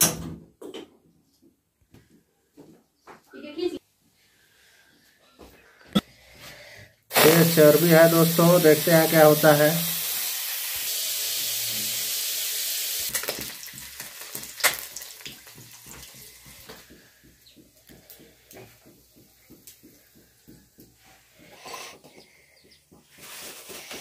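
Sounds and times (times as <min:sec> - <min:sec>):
fat sizzling and popping in pan: 0:07.1 - 0:17.1.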